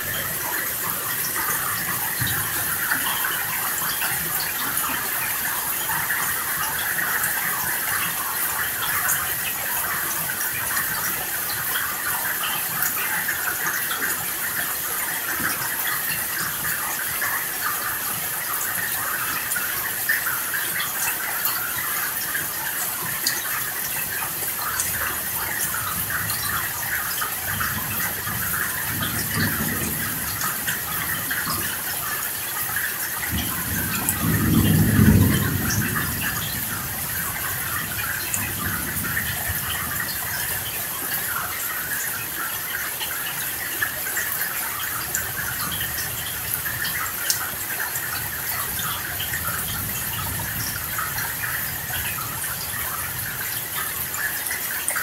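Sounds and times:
steady rain falling: 0.0s - 55.0s
thunder rumbling: 27.6s - 31.8s, 33.2s - 40.2s.

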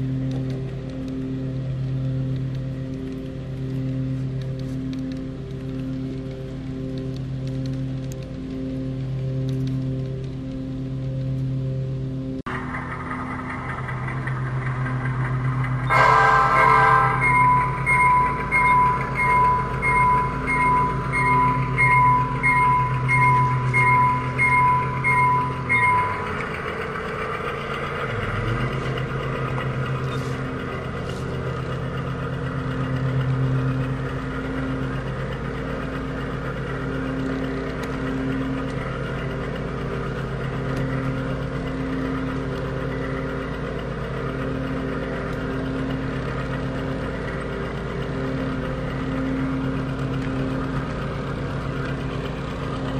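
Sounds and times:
diesel engine hum: 0.0s - 52.9s
train rumbling along track: 0.0s - 52.9s
locomotive bell ringing: 12.7s - 52.9s.

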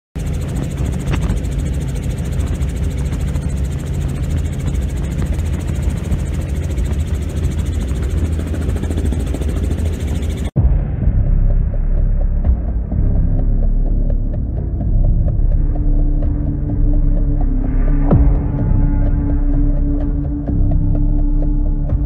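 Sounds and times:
helicopter rotor and engine drone: 0.2s - 10.6s.

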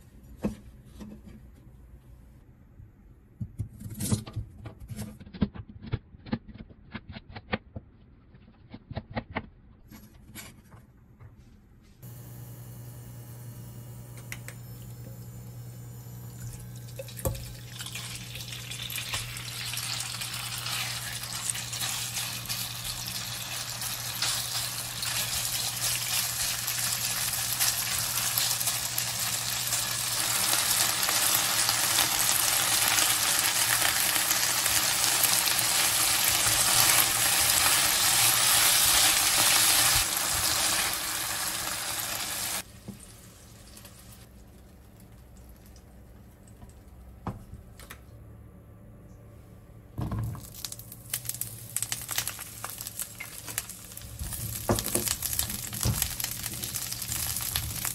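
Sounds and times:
low steady hum: 9.8s - 41.0s
chicken sizzling in oil: 17.5s - 44.3s, 51.2s - 57.9s.

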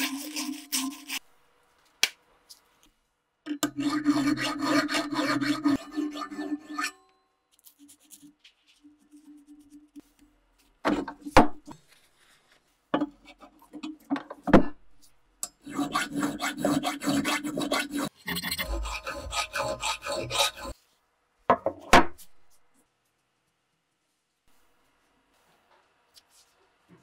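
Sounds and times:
file rasping on axe head: 0.0s - 1.2s, 3.6s - 7.0s, 15.6s - 20.8s.

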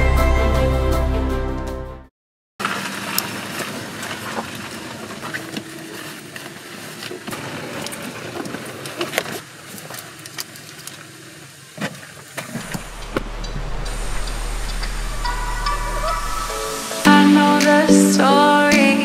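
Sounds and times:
outdoor background hiss: 9.2s - 19.0s.

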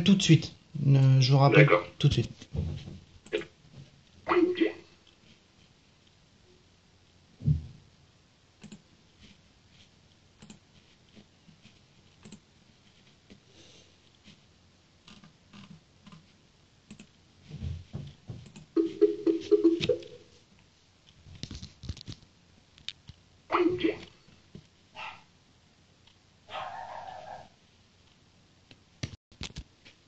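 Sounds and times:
keyboard typing clicks: 8.6s - 8.8s, 10.4s - 10.6s.

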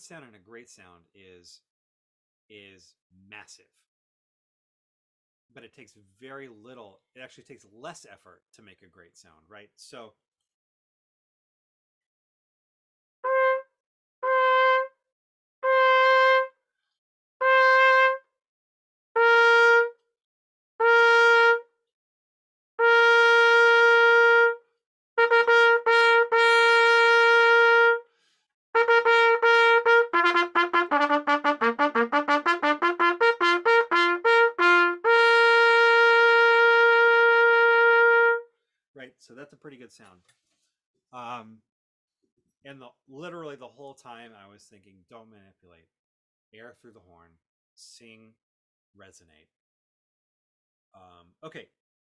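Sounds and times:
trumpet playing: 13.2s - 15.0s, 15.6s - 16.6s, 17.4s - 18.2s, 19.2s - 20.0s, 20.8s - 21.7s, 22.8s - 24.6s, 25.2s - 28.1s, 28.8s - 38.5s.

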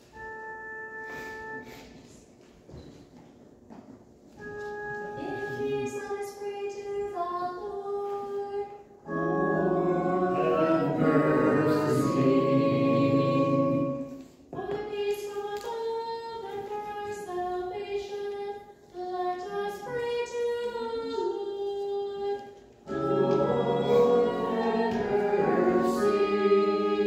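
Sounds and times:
congregation singing: 9.1s - 14.4s, 22.8s - 27.0s.

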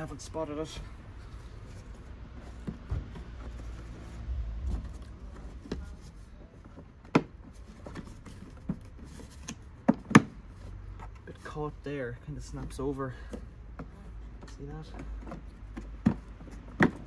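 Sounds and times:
low rumble: 4.0s - 5.4s.

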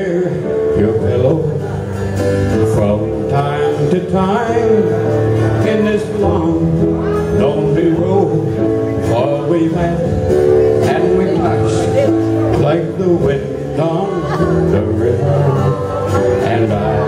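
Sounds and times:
country band with keyboard and drums: 0.0s - 17.0s
man singing into a microphone: 0.0s - 17.0s.

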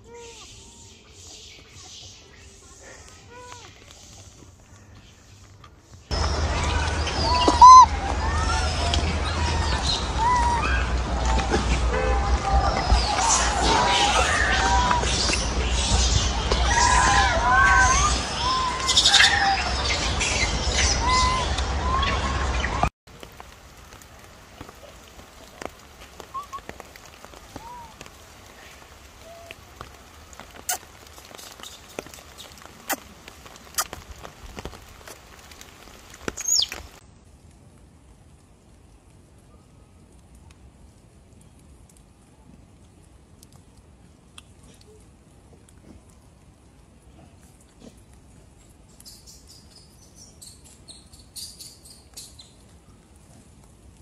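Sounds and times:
light rain hissing: 0.0s - 54.0s
small bird chirping: 36.4s - 36.8s.

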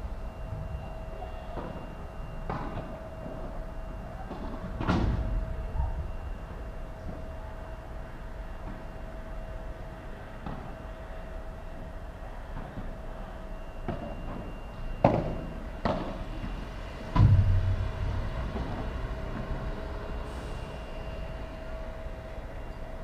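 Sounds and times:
heavy thud: 17.1s - 20.0s.

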